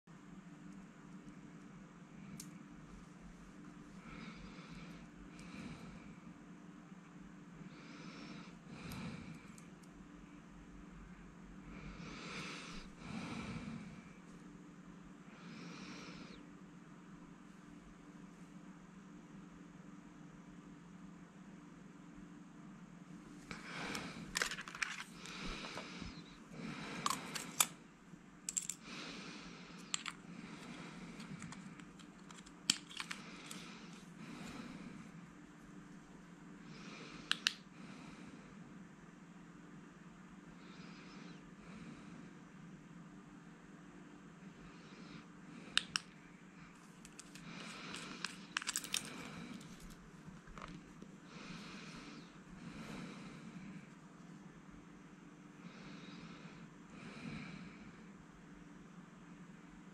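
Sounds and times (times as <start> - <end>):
metal parts clicking and clacking: 24.3 - 25.1, 31.4 - 33.6, 47.1 - 49.9
metal flashlight clicks and rattles: 47.1 - 49.2.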